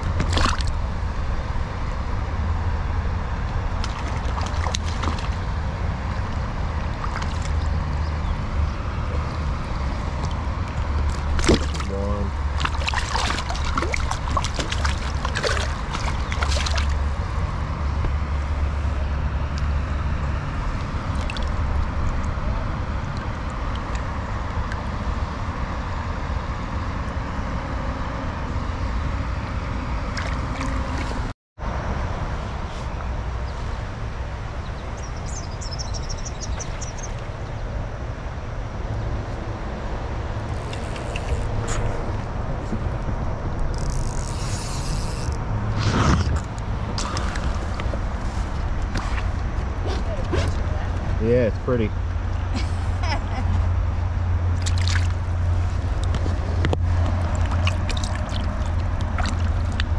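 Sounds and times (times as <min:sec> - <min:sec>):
sharp splashes: 0:00.0 - 0:00.8, 0:03.8 - 0:05.6, 0:06.8 - 0:07.8, 0:10.1 - 0:17.2, 0:21.0 - 0:21.9, 0:30.1 - 0:31.3, 0:54.5 - 0:59.9
stream water trickling: 0:00.0 - 0:27.2, 0:29.3 - 0:52.5, 0:53.7 - 0:59.9.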